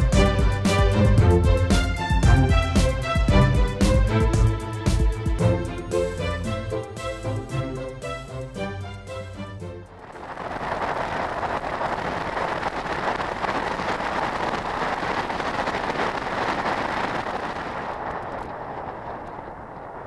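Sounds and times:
motorcycle road noise: 0:09.9 - 0:20.0
wind buffeting microphone: 0:09.9 - 0:20.0.

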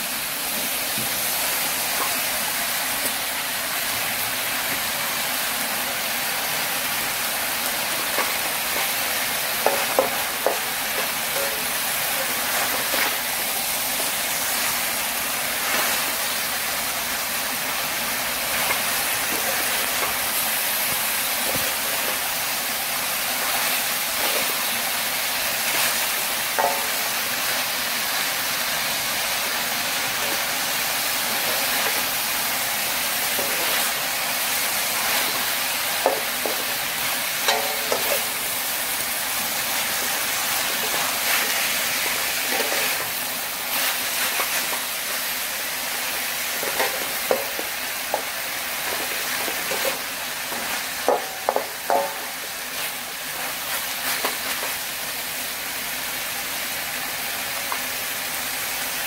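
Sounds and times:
food sizzling in a wok: 0:00.0 - 0:59.0
spatula scraping a pan: 0:37.5 - 0:38.4.

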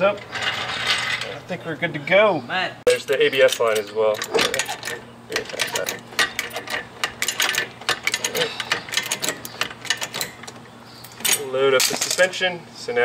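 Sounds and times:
floor jack clicking and clanking: 0:03.1 - 0:10.6.

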